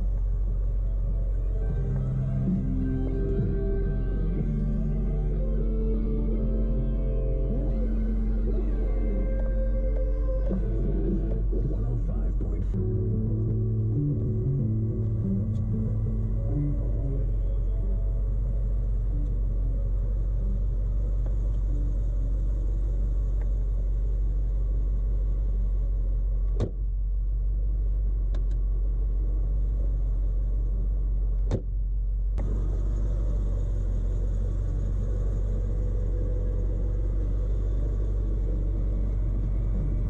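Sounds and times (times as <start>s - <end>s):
car engine idling: 0.0s - 40.0s
car door clicks: 26.5s - 26.8s, 31.4s - 31.7s.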